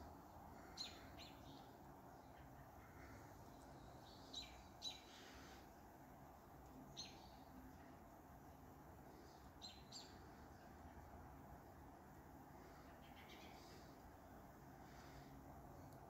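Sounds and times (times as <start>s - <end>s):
faint bird chirps: 0.5s - 5.6s, 6.8s - 7.8s, 9.1s - 10.8s, 12.6s - 14.0s.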